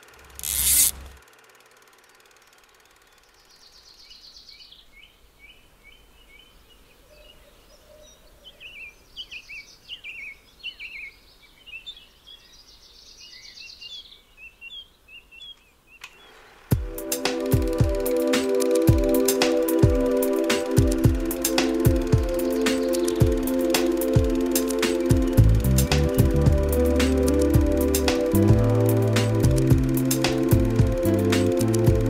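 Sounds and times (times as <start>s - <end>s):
faint outdoor hiss: 0.0s - 32.0s
songbirds chirping: 2.0s - 16.7s, 19.2s - 29.1s.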